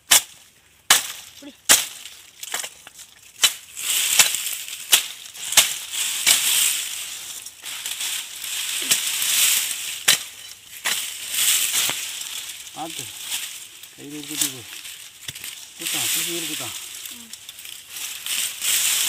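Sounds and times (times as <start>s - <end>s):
crunching and rustling fronds: 0.0s - 19.0s
sharp chopping strikes: 0.1s - 2.8s, 3.4s - 6.5s.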